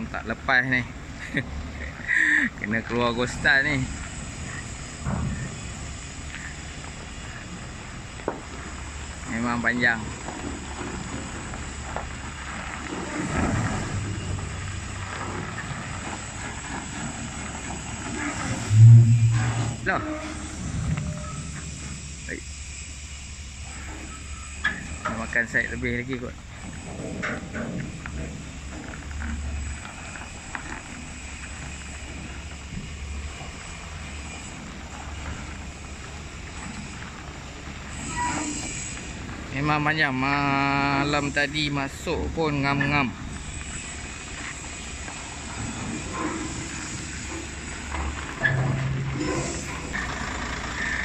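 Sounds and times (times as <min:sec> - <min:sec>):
truck diesel engine under load: 0:00.0 - 0:51.0.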